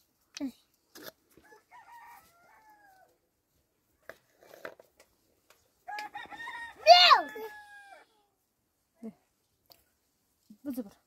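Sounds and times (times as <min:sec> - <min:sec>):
rooster crowing: 0:01.5 - 0:03.1, 0:05.9 - 0:08.1.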